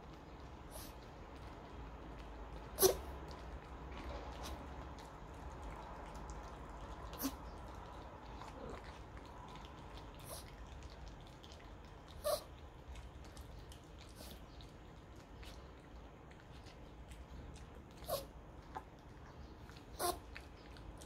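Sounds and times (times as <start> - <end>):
dog yelping: 2.8 - 3.1, 12.2 - 12.5, 18.0 - 18.3, 19.9 - 20.4.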